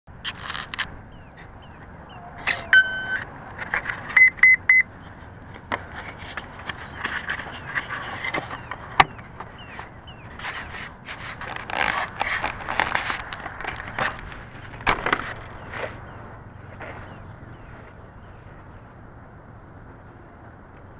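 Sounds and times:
speed controller beeps: 2.3 - 3.3, 4.1 - 4.9
handling noise on foam: 5.0 - 16.0.

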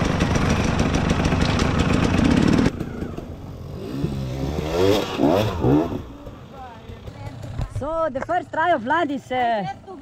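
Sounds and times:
dirt bike engine revving: 0.0 - 7.8.

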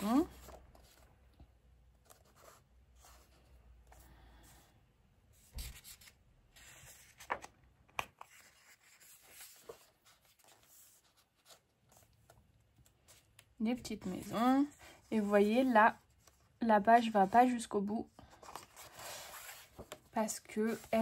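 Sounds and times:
paper pages rustling: 0.0 - 1.1, 5.4 - 16.6, 18.2 - 21.0.

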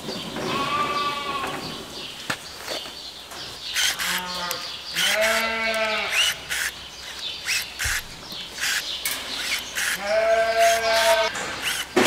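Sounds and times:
sheep bleating: 0.5 - 1.6, 4.0 - 6.2, 10.0 - 11.3.

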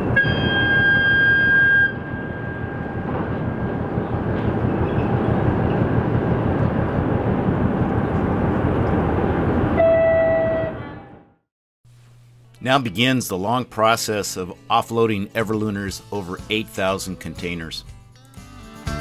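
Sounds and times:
tugboat whistle blast: 0.0 - 3.3, 9.8 - 11.0
low rumble of boat engines: 0.0 - 11.0
container terminal noise: 0.0 - 11.2.

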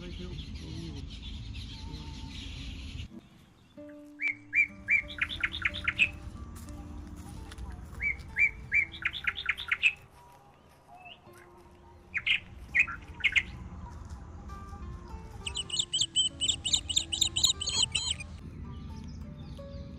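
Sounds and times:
songbird singing: 0.0 - 19.9
soft background music: 0.1 - 19.9
fast high chirping: 15.4 - 18.3.

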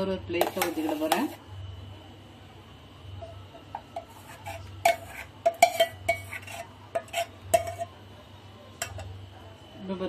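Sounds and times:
metal spoon clinking on steel plate: 3.8 - 8.0.

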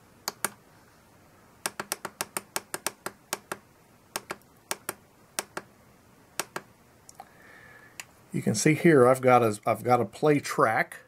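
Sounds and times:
transmitter buttons clicking: 0.2 - 0.6, 1.6 - 5.7, 6.4 - 6.7.

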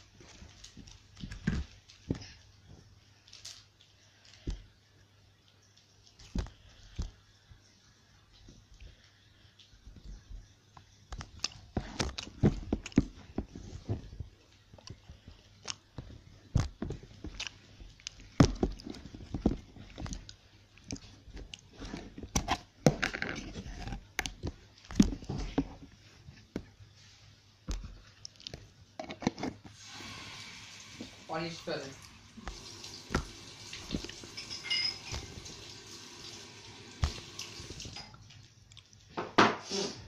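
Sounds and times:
plastic tub handled: 11.1 - 27.1.

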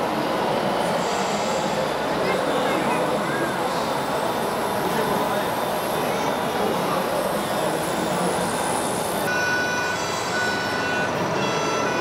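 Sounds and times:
hall noise: 0.0 - 12.0
high electronic beeps: 9.3 - 12.0.

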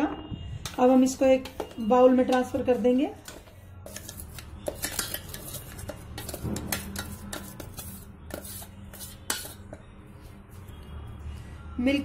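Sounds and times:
spatula scraping ceramic bowl: 1.0 - 9.9.

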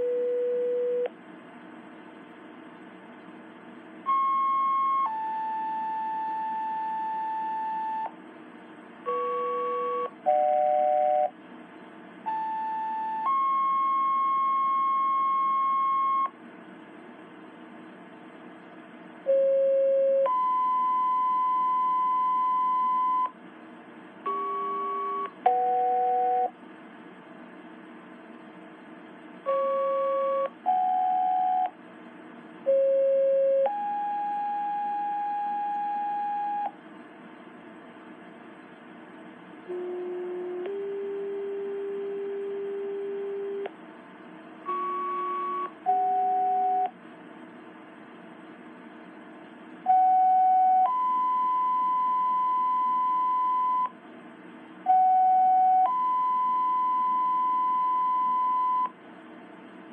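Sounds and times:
low radio hiss: 0.0 - 59.9
two-tone pager tones: 4.1 - 8.1, 12.3 - 16.3, 19.3 - 23.3, 24.3 - 26.5, 29.5 - 31.7, 44.7 - 46.9, 49.9 - 53.9, 54.9 - 58.9.

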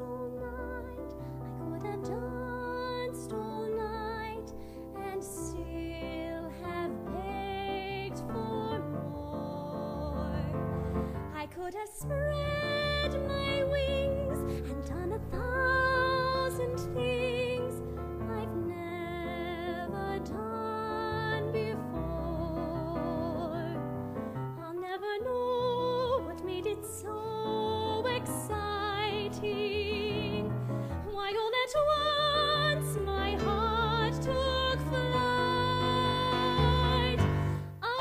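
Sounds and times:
woman singing with vibrato: 11.3 - 23.8, 24.6 - 38.0.

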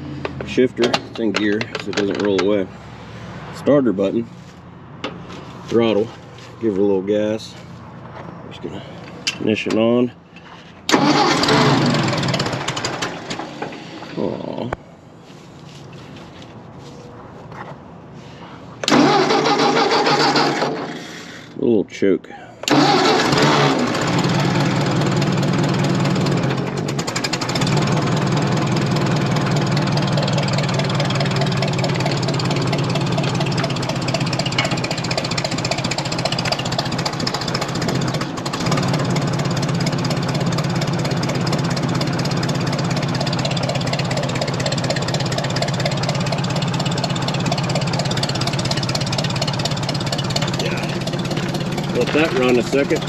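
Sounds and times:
tractor engine idling: 0.0 - 16.6, 18.1 - 21.6, 22.6 - 53.0.

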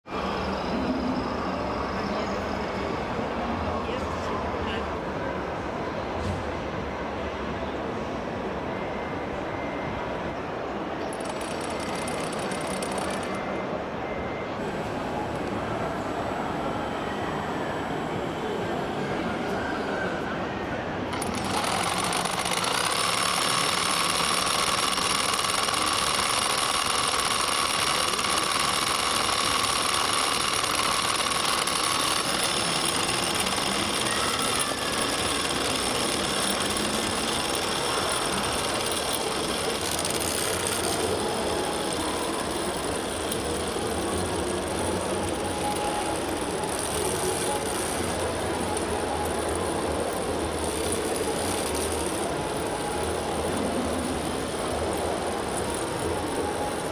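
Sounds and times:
model motors and gears whirring: 11.1 - 13.4, 21.1 - 56.9.

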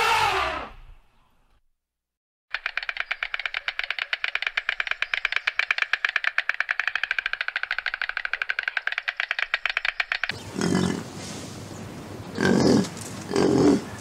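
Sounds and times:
stork clattering its bill: 2.5 - 10.9.

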